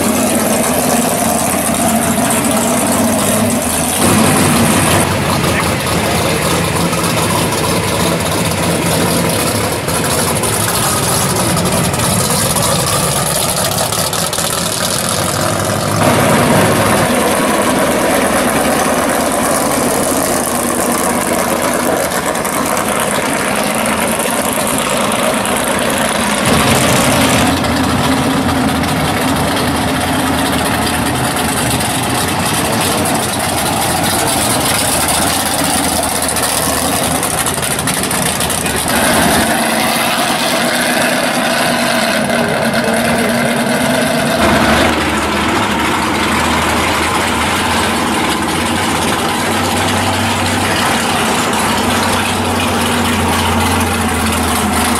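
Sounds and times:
race car engines idling: 0.0 - 54.9.

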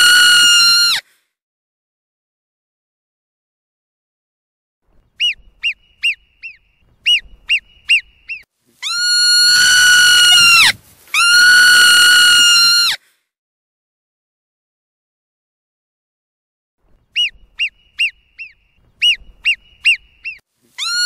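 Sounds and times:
marmot chirping whistles: 5.2 - 10.6, 17.1 - 21.0
marmot long high whistles: 5.2 - 13.0, 17.2 - 21.0.

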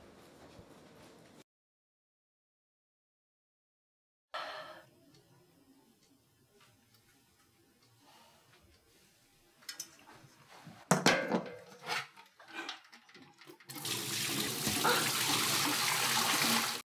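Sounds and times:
liquid pouring: 13.2 - 16.8.

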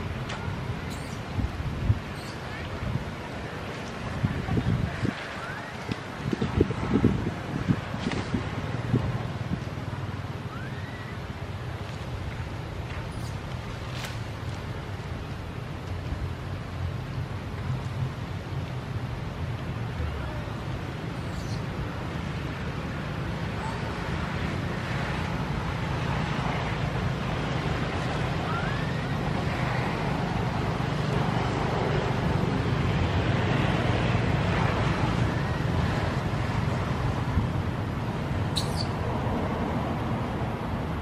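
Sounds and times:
rumbling background noise with hiss: 0.0 - 41.0
high chirp: 38.5 - 39.0.

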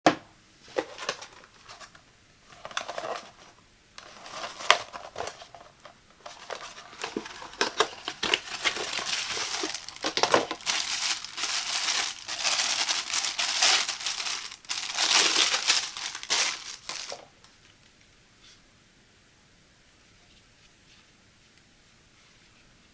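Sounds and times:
plastic bag crinkling: 2.6 - 17.4
cardboard box clicks and rustles: 6.2 - 17.2.

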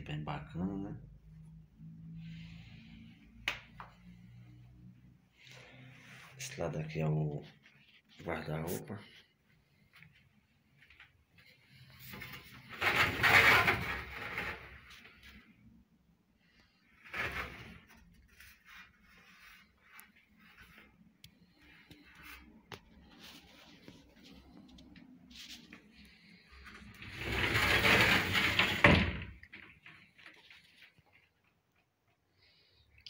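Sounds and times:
wardrobe door sliding or closing: 12.0 - 14.9, 17.0 - 17.9, 26.7 - 29.5.

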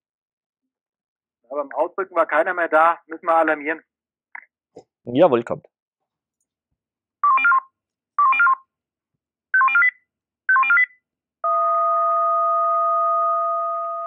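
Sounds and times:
two-tone fire alarm signal: 11.4 - 14.0.

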